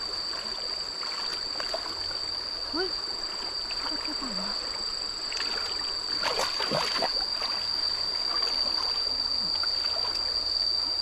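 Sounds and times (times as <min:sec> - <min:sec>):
hands splashing in shallow water: 0:05.3 - 0:07.6.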